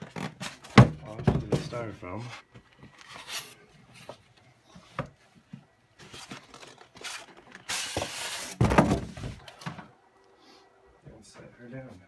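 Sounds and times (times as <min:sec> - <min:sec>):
styrofoam scraping and rustling: 0:06.0 - 0:09.4
loud thump: 0:08.6 - 0:09.3.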